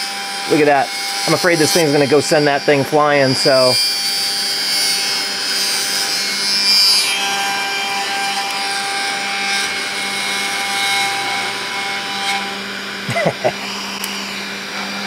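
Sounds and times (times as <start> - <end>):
spindle whine: 7.8 - 15.0.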